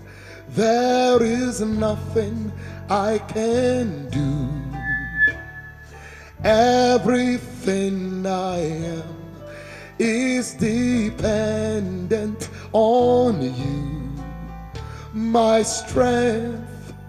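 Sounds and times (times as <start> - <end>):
person singing: 0.5 - 5.4
instrumental accompaniment: 4.6 - 6.7.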